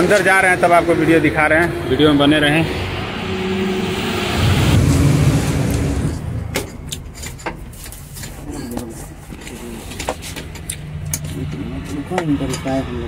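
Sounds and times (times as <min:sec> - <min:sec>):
engine rumble: 0:00.0 - 0:13.0
low engine hum: 0:00.0 - 0:13.0.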